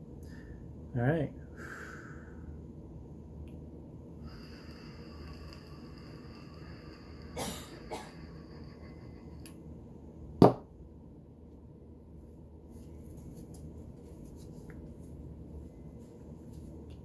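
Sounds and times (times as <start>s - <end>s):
short noisy bursts: 4.2s - 9.5s
vape pen high-pitched whine: 4.2s - 9.7s.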